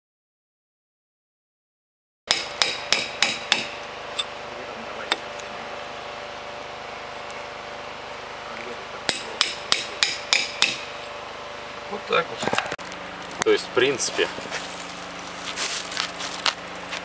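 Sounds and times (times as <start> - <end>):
hammer striking caulking iron: 2.3 - 3.8, 9.1 - 11.0.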